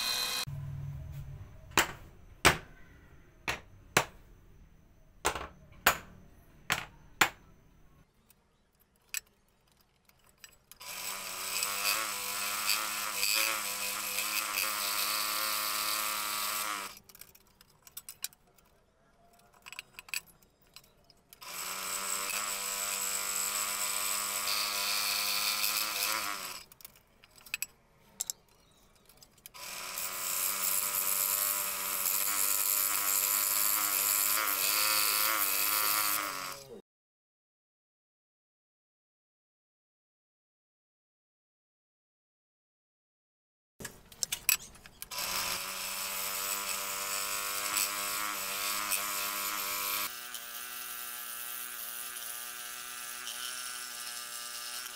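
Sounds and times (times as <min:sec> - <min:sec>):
scroll saw cutting wood: 0:00.0 - 0:00.5, 0:10.8 - 0:17.1, 0:21.4 - 0:26.8, 0:29.5 - 0:36.8, 0:44.6 - 0:54.9.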